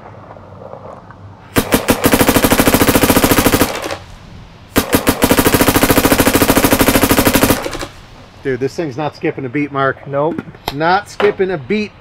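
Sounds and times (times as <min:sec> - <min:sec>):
paintball marker rapid firing: 0:01.6 - 0:04.0, 0:04.8 - 0:08.0.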